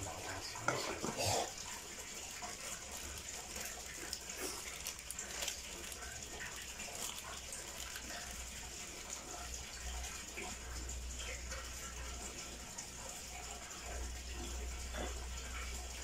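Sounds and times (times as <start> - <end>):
pot simmering with watery hiss: 0.0 - 16.0.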